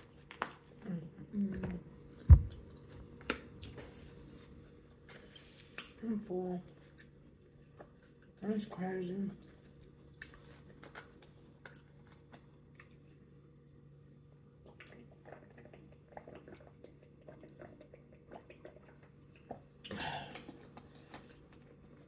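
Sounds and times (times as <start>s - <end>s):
faint steady hum: 0.0s - 22.0s
person chewing salad: 14.7s - 22.0s.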